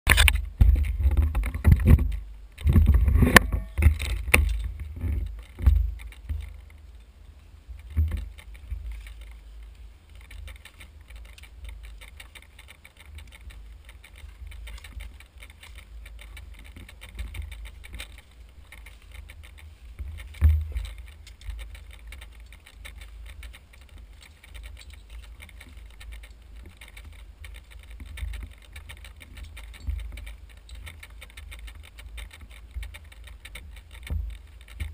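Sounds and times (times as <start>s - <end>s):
camera handling knocks and rattling: 0.1s - 6.7s
wind rumble on microphone: 0.1s - 34.9s.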